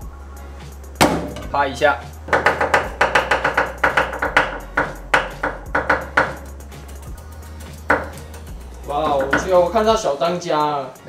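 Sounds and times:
cleaver chopping on wooden board: 0:02.3 - 0:06.4.

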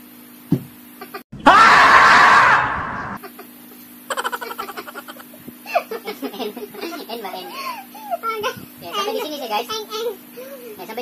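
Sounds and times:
woman giggling: 0:04.1 - 0:08.0.

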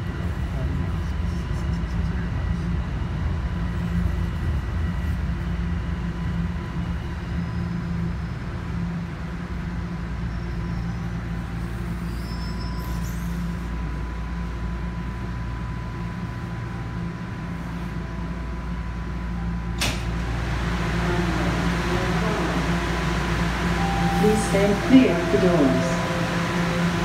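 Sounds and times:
train equipment low hum: 0:00.0 - 0:27.0
thin steady whine: 0:13.3 - 0:27.0
station ambience: 0:13.6 - 0:27.0
sliding doors opening clunk: 0:19.7 - 0:20.9.

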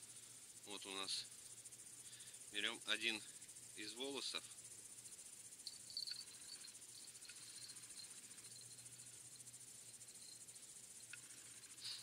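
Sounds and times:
faint ticks from hands: 0:04.4 - 0:12.0.

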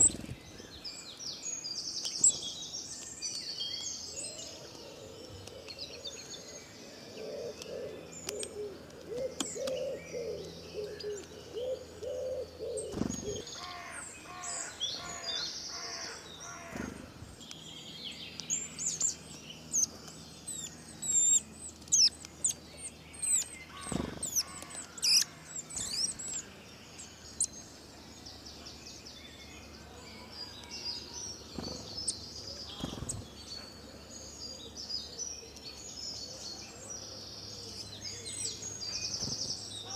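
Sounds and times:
birds chirping and twittering: 0:00.0 - 0:39.9
low repeated bird call: 0:20.5 - 0:27.5.

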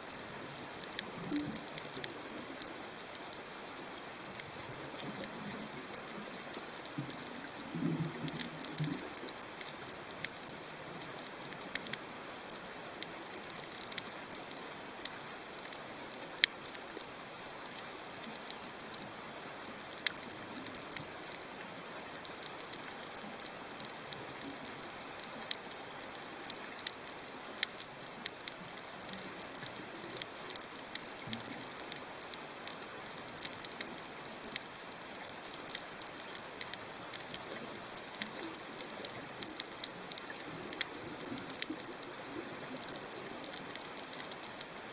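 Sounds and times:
snapping shrimp crackle: 0:22.3 - 0:44.9.

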